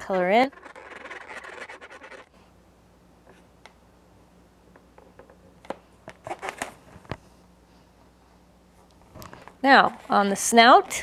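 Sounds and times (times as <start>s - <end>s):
marker scribbling on balloon: 0.4s - 2.3s.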